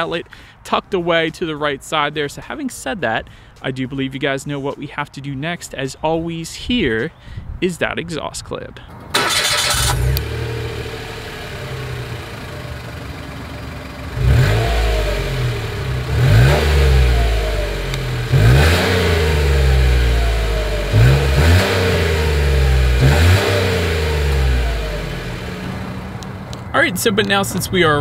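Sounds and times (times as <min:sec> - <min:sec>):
car engine starting and revving: 0:08.9 - 0:28.0.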